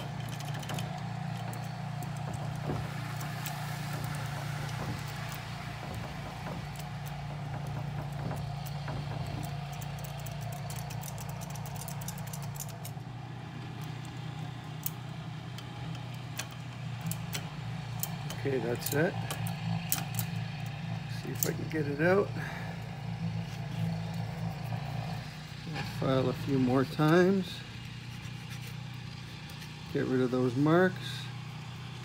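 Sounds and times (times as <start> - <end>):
key clicking and rattling in lock: 0.0 - 13.0, 14.8 - 20.7
low engine hum: 0.0 - 32.0.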